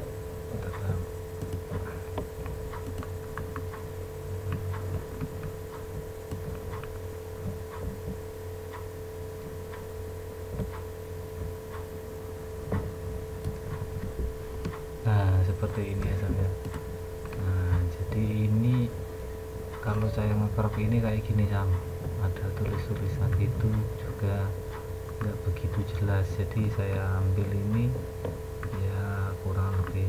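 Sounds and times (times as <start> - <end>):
steady electrical hum: 0.0 - 30.0
computer mouse clicking: 0.5 - 8.8, 16.0 - 17.8.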